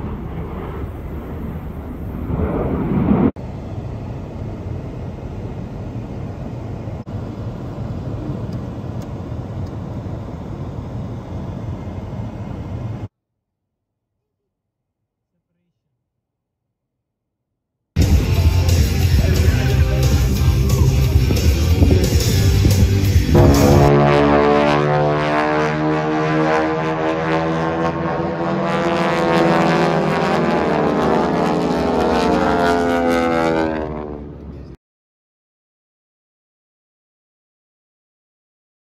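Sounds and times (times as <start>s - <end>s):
aircraft engines droning: 0.0s - 13.1s, 18.0s - 34.8s
fighter jets rumbling overhead: 0.0s - 13.1s, 18.0s - 34.8s.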